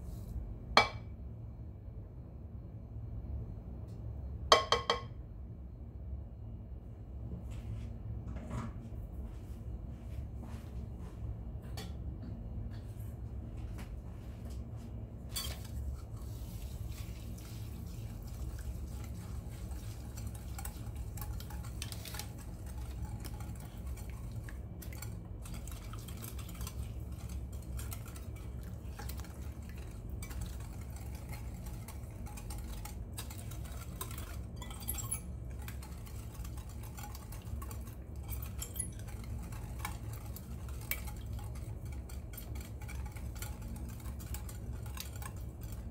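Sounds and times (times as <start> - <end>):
steady low hum: 0.0 - 45.9
whisk clinking against glass: 4.5 - 5.1, 15.3 - 45.9
whisk beating batter: 15.3 - 45.9.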